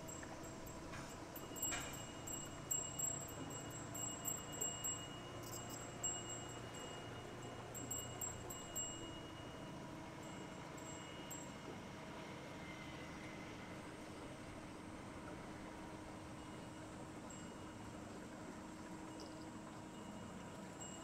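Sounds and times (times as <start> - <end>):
wind chime tinkling: 0.0 - 11.6.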